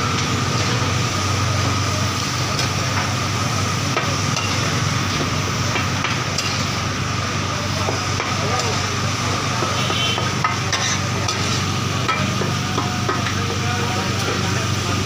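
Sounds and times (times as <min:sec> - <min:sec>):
meat sizzling in oil: 0:00.0 - 0:15.0
metal spatulas scraping griddle: 0:10.4 - 0:12.2.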